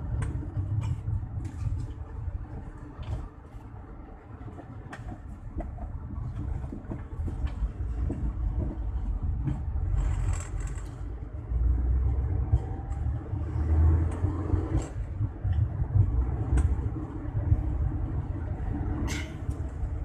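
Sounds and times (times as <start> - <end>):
car cabin road rumble: 0.0 - 20.0.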